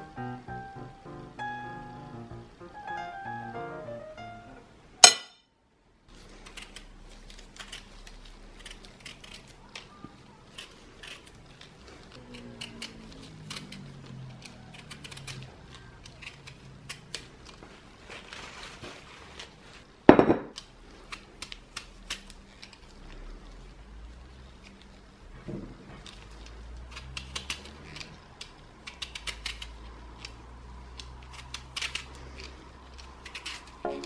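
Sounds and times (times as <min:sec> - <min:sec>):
peeler scraping potato skin: 0:06.2 - 0:17.6, 0:26.1 - 0:33.8.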